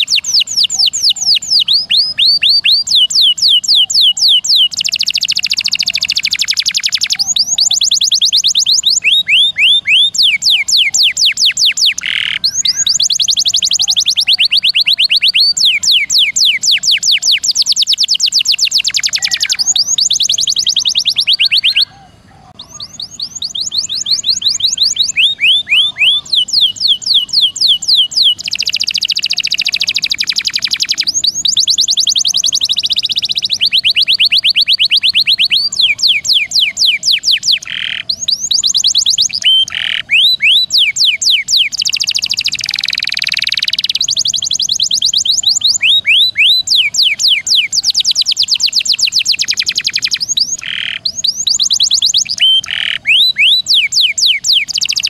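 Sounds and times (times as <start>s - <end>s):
canary singing trills: 0.0s - 55.0s.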